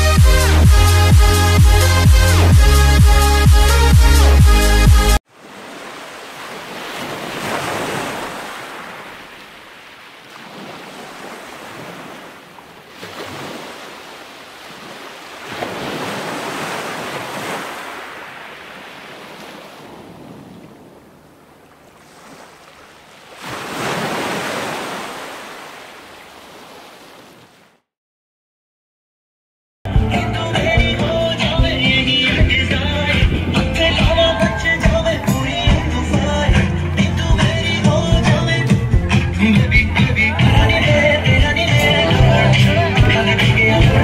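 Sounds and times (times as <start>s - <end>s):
surf breaking on sandy beach: 5.3s - 27.6s.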